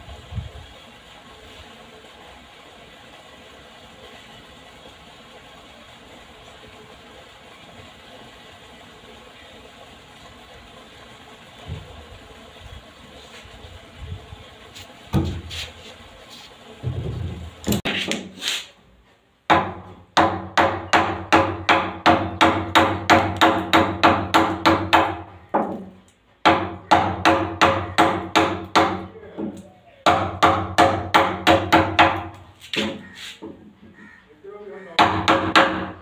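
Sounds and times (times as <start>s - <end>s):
hammer striking chisel into wood: 19.5s - 25.7s, 26.4s - 29.1s, 30.1s - 33.0s, 35.0s - 36.0s.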